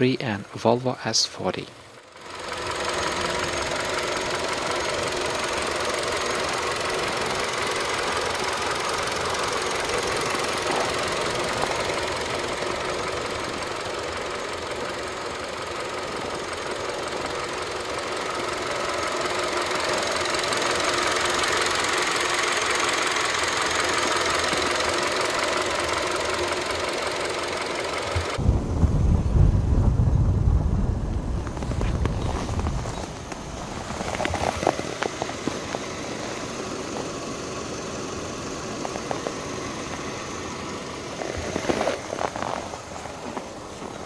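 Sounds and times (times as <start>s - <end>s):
car engine idling: 0.0s - 44.0s.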